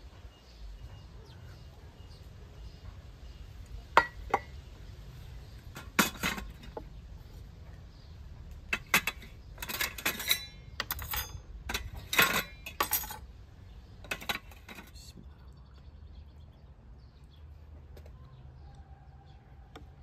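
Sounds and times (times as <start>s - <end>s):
metal plates and spoons clinking: 5.8s - 6.8s, 8.7s - 13.2s, 14.0s - 14.9s.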